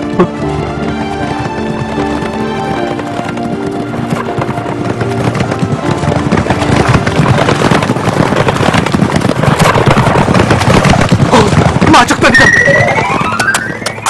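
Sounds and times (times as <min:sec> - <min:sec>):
horses galloping: 0:00.0 - 0:14.0.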